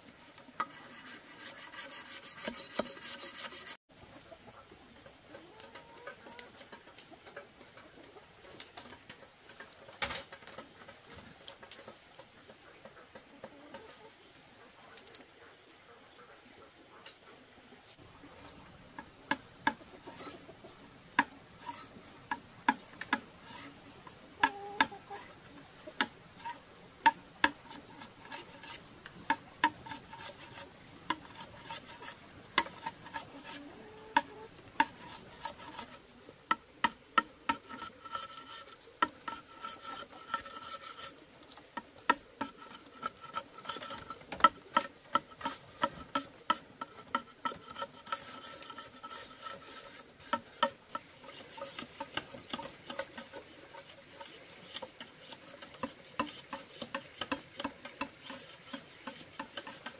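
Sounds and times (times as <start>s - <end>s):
knife scraping bamboo: 0.3s - 3.8s, 19.0s - 20.4s, 21.2s - 23.8s, 24.4s - 59.9s.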